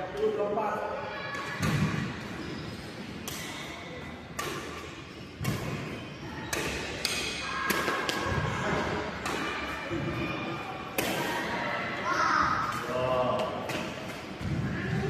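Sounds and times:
racket hitting shuttlecock: 0:03.2 - 0:09.8, 0:10.9 - 0:11.5.

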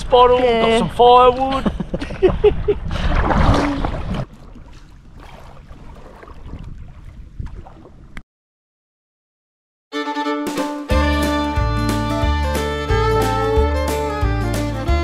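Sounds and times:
wind buffeting microphone: 0:00.0 - 0:08.2
water lapping at kayak: 0:00.2 - 0:08.2
paddle splashes: 0:02.9 - 0:08.2.

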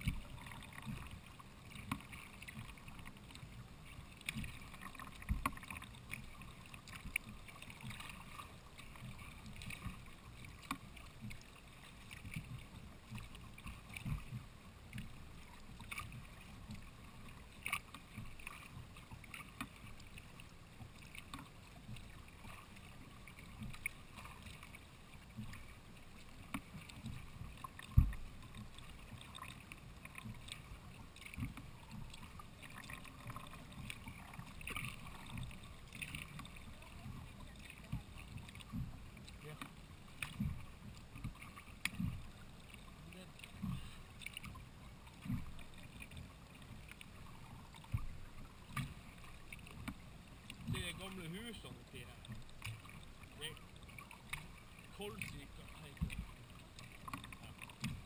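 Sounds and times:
paddle splashes and drips: 0:00.0 - 0:58.0
paddle knocks against hull: 0:04.2 - 0:05.8, 0:26.4 - 0:29.4.

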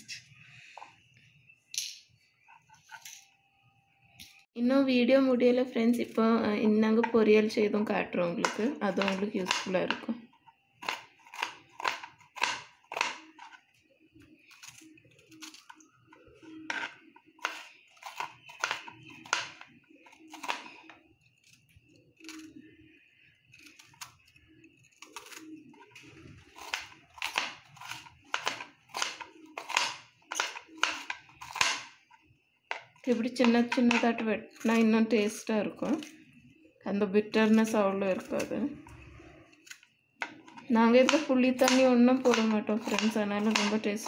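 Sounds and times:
knife chopping on cutting board: 0:08.4 - 0:10.0, 0:10.8 - 0:13.5, 0:16.7 - 0:19.6, 0:26.5 - 0:32.0, 0:39.6 - 0:43.8.

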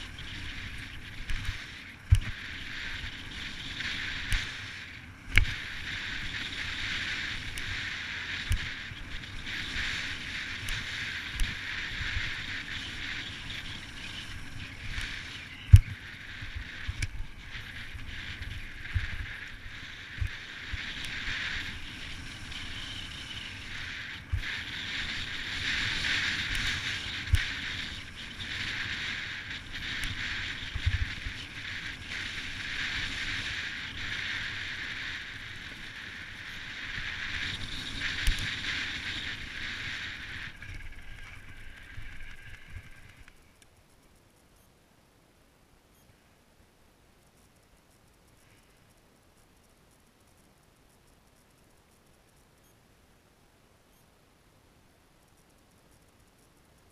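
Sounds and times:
tyre and wind noise: 0:00.0 - 0:43.5
bike knocking and rattling: 0:36.9 - 0:43.6.

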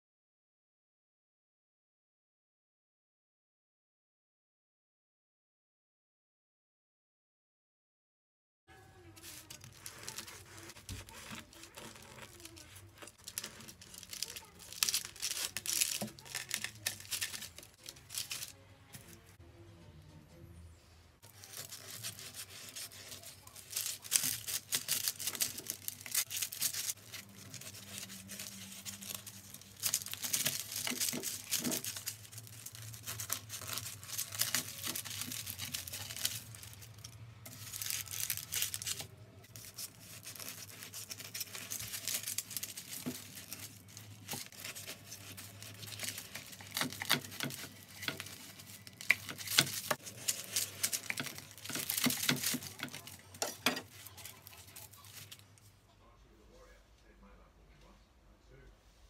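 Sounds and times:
knife sawing through crusty bread: 0:09.3 - 0:17.3, 0:21.4 - 0:32.1.

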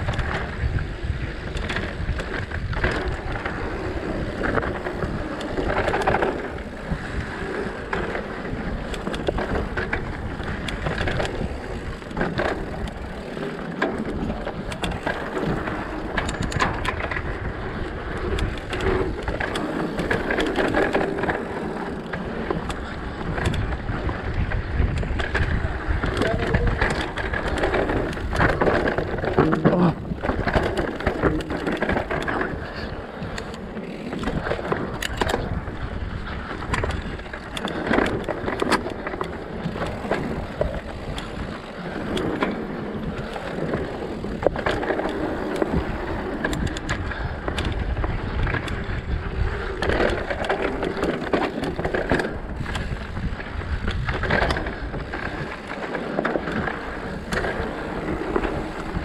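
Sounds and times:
bike rattling: 0:00.0 - 0:59.0
bike tyres crunching over dirt: 0:00.0 - 0:59.0.

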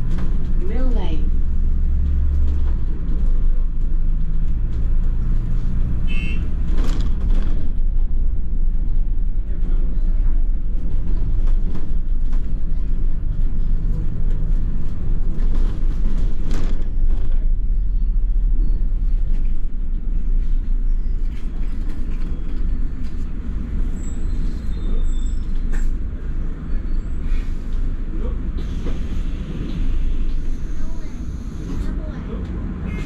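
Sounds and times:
bus engine and road rumble: 0:00.0 - 0:33.0
bodywork knocks and rattles: 0:06.5 - 0:08.4.

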